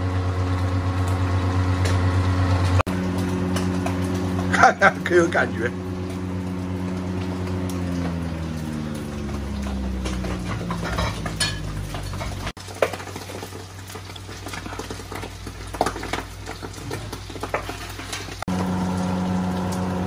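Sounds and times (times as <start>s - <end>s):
low droning hum: 0.0s - 12.6s
oil sizzling and bubbling: 0.0s - 20.0s.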